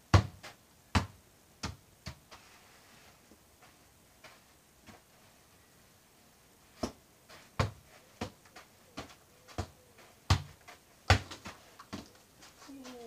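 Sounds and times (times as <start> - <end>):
football thuds on artificial grass: 0.1 - 2.3, 6.7 - 8.4, 9.0 - 12.0.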